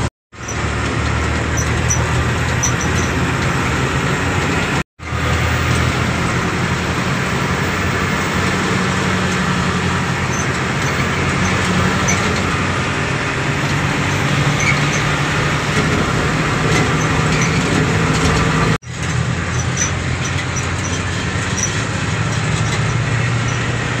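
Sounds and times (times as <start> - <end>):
road noise: 0.0 - 24.0
truck engine hum: 0.0 - 24.0.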